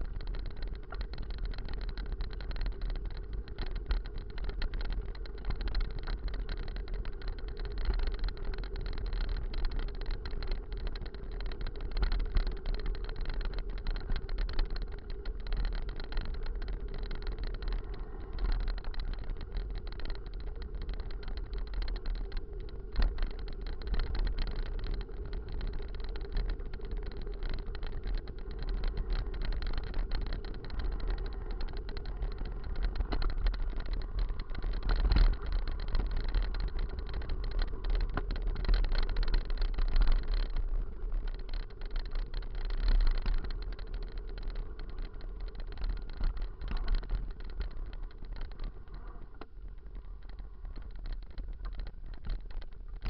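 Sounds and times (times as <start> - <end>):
bike rattling: 0.0 - 53.0
wind rumbling on microphone: 0.0 - 53.0.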